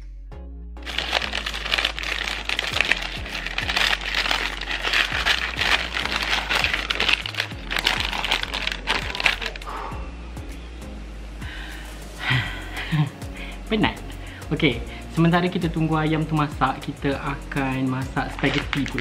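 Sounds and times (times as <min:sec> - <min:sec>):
background music: 0:00.0 - 0:19.0
paper bag crinkling: 0:00.8 - 0:09.6, 0:18.3 - 0:19.0.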